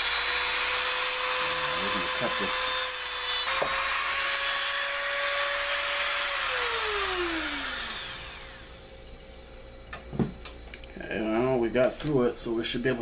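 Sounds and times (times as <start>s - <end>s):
rotary tool grinding bone: 0.0s - 8.6s.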